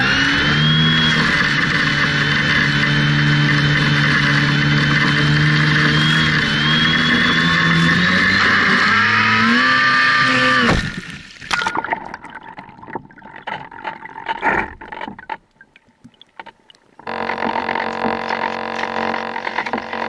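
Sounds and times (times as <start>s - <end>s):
electric motor whine: 0.0s - 11.4s, 17.0s - 20.0s
water splashing and gurgling: 10.4s - 18.7s.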